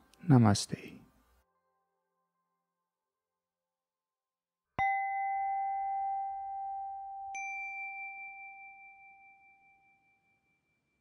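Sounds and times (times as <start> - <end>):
high bell chime: 4.8 - 11.0
low bell chime: 4.8 - 11.0.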